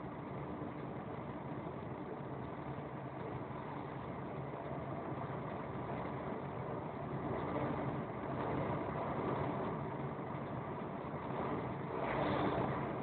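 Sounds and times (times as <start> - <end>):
vehicle engine drone: 0.0 - 13.0
tyre noise on wet road: 7.1 - 13.0.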